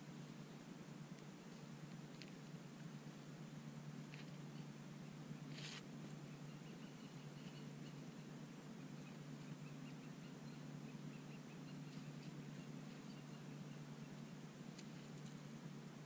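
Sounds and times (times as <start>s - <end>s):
steady low hum: 0.0s - 16.0s
faint bird chirps: 4.1s - 15.6s.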